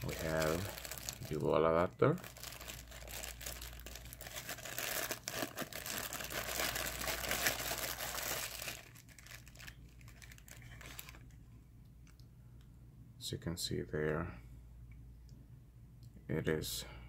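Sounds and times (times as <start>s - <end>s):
plastic bag crinkling: 0.0s - 11.4s.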